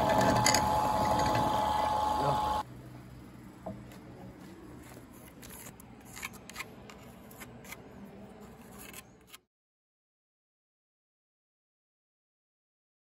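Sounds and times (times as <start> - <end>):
pencil scratching: 4.8 - 9.4.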